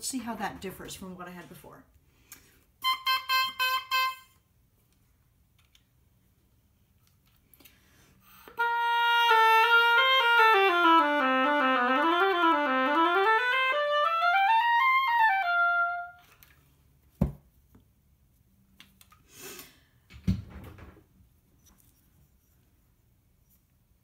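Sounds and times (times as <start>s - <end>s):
oboe playing: 2.8s - 4.4s, 8.4s - 16.4s.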